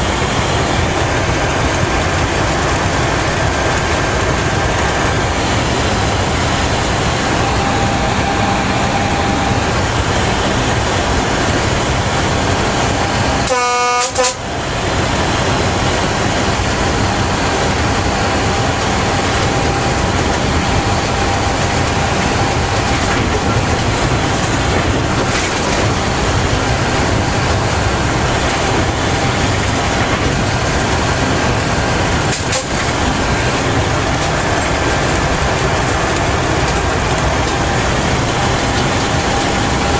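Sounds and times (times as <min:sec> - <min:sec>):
train track and running noise: 0:00.0 - 0:39.9
locomotive horn blast: 0:07.0 - 0:11.4, 0:12.8 - 0:14.7.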